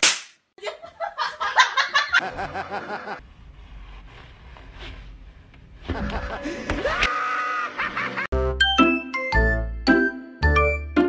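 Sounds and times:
person laughing: 0.6s - 3.2s, 5.9s - 8.3s.

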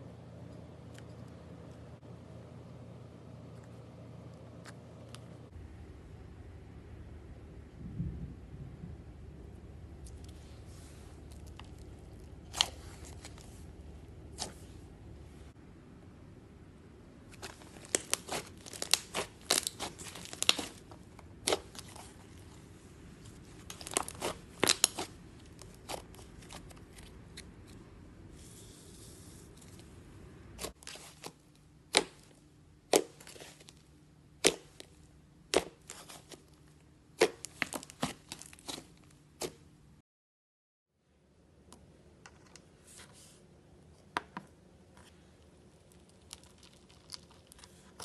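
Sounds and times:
slime popping and crackling: 17.4s - 22.5s, 23.6s - 26.7s, 30.6s - 33.8s, 37.2s - 39.0s.

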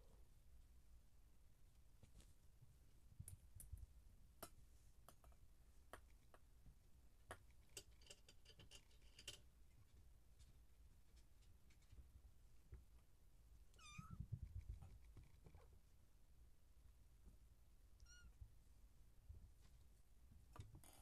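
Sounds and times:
kittens pawing and clicking: 7.2s - 12.9s, 13.8s - 15.7s.

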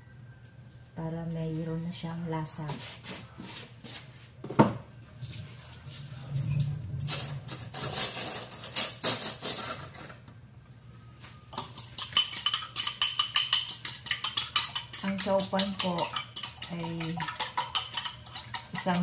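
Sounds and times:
dishes and utensils clattering: 5.3s - 10.3s, 11.5s - 19.0s
utensil clinking against bowl: 11.5s - 19.0s.

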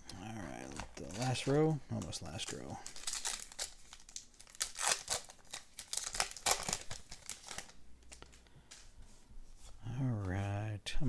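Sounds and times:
card pack wrapper crinkling: 0.6s - 8.9s
wrapper rustling: 0.6s - 8.9s.

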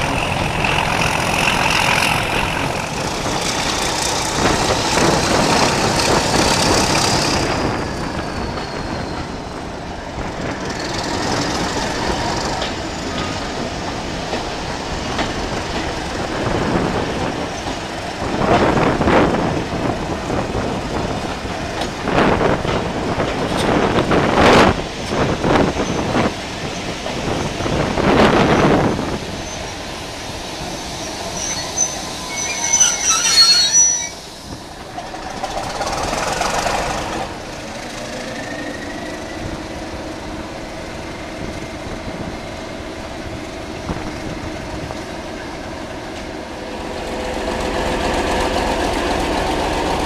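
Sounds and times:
wheel and rail clatter: 0.0s - 29.8s, 30.6s - 50.0s
train wheels rumbling on track: 0.0s - 50.0s
wheel squeal: 4.8s - 9.7s, 30.6s - 36.7s.

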